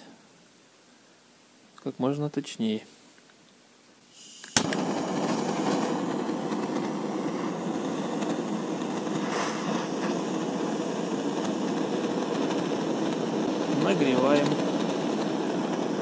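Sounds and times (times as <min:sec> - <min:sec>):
gas torch hissing: 0:04.1 - 0:16.0
gas torch ignition click: 0:04.2 - 0:16.0.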